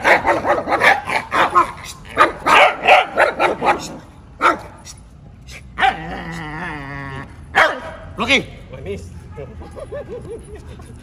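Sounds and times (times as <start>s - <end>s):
dog drawn-out cry: 0.0s - 4.7s
dog barking: 0.0s - 4.8s, 5.8s - 6.1s, 7.5s - 8.1s.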